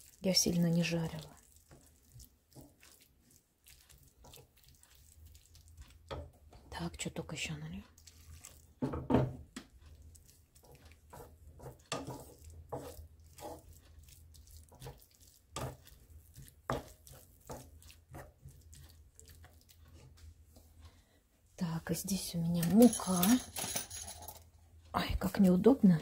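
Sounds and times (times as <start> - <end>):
spatula scraping frying pan: 1.4 - 6.7, 7.9 - 20.2.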